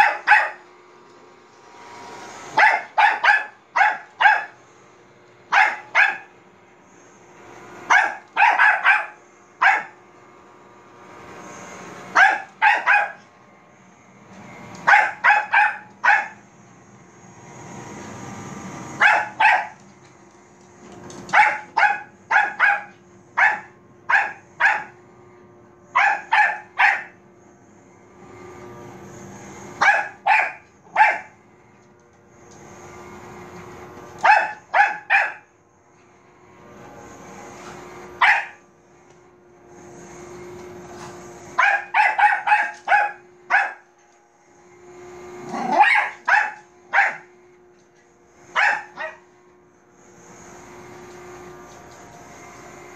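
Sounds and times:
dog barking: 0.0 - 0.6, 2.5 - 4.6, 5.5 - 6.3, 7.9 - 10.0, 12.1 - 13.3, 14.8 - 16.4, 19.0 - 19.8, 21.3 - 25.0, 26.0 - 27.2, 29.8 - 31.4, 34.2 - 35.5, 38.2 - 38.6, 41.6 - 43.9, 45.5 - 47.3, 48.5 - 49.2
robot vacuum humming: 0.0 - 52.9.

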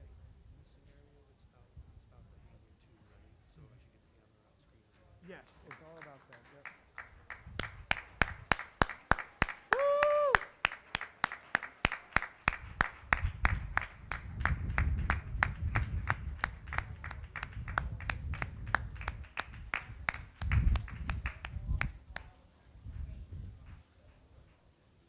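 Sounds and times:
hands clapping rhythmically: 5.2 - 22.4.

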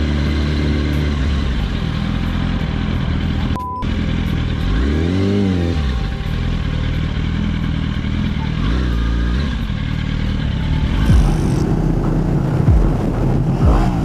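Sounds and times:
motorcycle engine revving: 0.0 - 14.0
censor bleep: 3.6 - 3.9.

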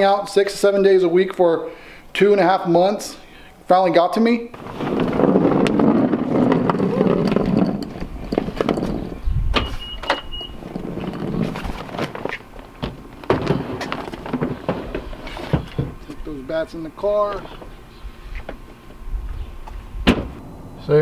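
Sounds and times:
rustling: 4.5 - 9.9
trunk lid clunk: 20.0 - 20.6.

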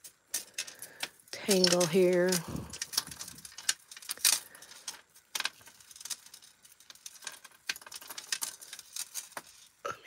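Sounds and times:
metal chains clinking: 0.3 - 9.5.

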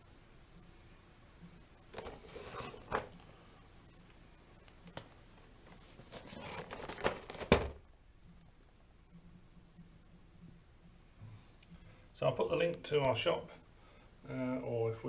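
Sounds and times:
cardboard box rustling: 2.0 - 3.0, 5.7 - 7.8.

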